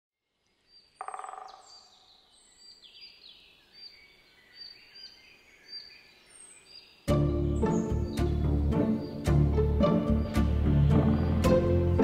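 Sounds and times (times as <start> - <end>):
songbirds chirping: 0.2 - 12.0
woodpecker drumming: 0.9 - 2.1, 7.1 - 12.0.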